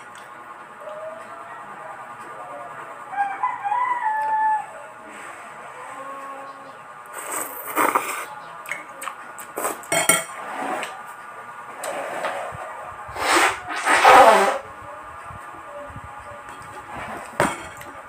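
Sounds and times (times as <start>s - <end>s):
quiet background music: 0.0s - 18.0s
eating noises: 7.0s - 10.0s
utensils clinking on ceramic bowl: 9.8s - 10.4s.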